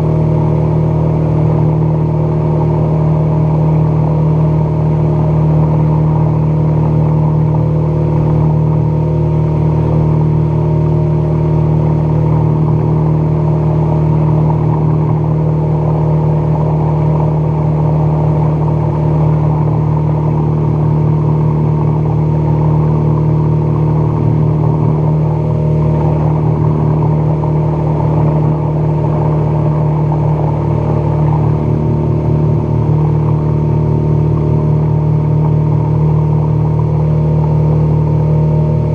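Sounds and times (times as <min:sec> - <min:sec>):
outboard motor running: 0:00.0 - 0:38.9.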